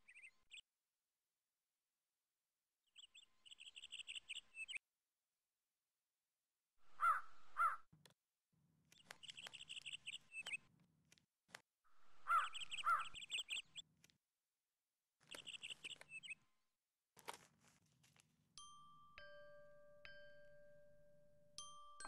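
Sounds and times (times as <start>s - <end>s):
small bird chirping trills: 0.0s - 0.7s, 2.9s - 4.8s, 6.9s - 7.9s, 8.9s - 11.2s, 12.1s - 14.1s, 15.2s - 16.6s
crow cawing: 6.9s - 7.8s, 12.2s - 13.2s.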